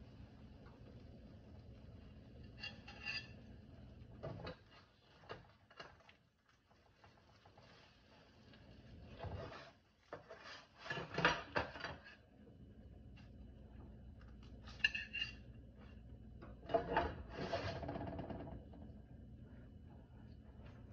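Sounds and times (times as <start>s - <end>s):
metal spatula scraping baking mat: 2.5s - 3.5s, 9.1s - 12.2s, 14.6s - 15.5s, 16.7s - 17.8s.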